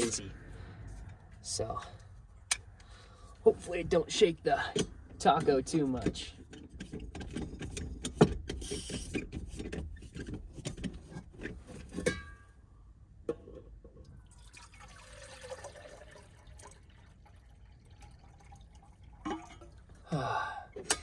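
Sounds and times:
water pouring into a cup: 14.2s - 19.9s
stove handling clicks and rattles: 20.8s - 21.0s.

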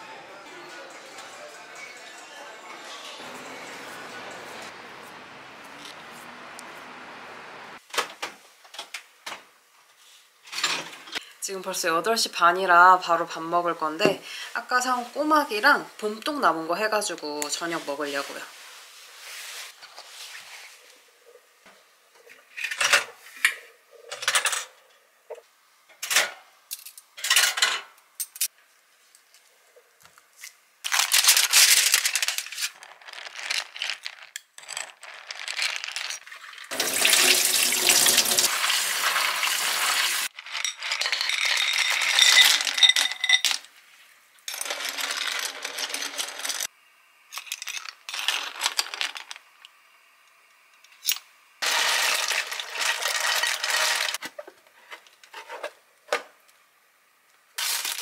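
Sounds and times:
running water: 36.3s - 40.3s
clam shells clinking in a bowl: 40.4s - 43.6s.

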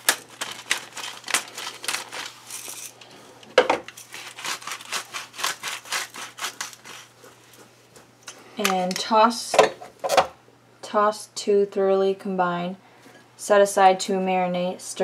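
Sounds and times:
pepper mill grinding: 0.0s - 9.2s.

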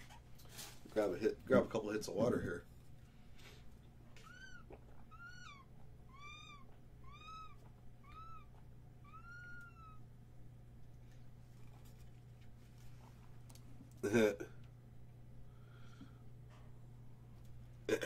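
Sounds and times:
faint steady hum: 0.0s - 18.0s
high-pitched animal-like calls: 4.2s - 10.1s.

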